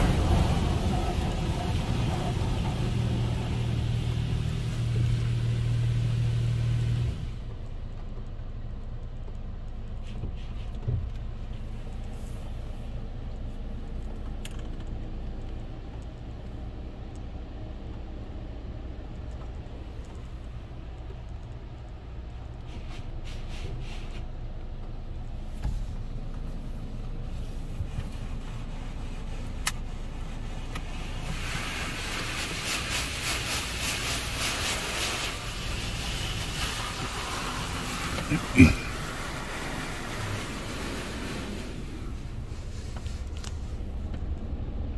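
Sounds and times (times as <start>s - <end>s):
water spraying on car glass: 0.0s - 7.4s, 25.8s - 44.9s
low hum of wash machinery: 0.0s - 44.9s
faint clicks and drips: 7.4s - 12.2s, 13.0s - 22.7s
loud low pump hum: 31.9s - 43.0s.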